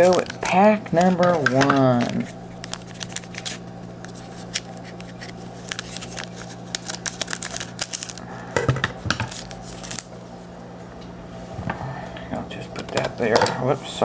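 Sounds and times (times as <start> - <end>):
scissors snipping foil: 0.0 - 8.2
foil wrapper crinkling: 0.0 - 8.3, 9.2 - 10.1.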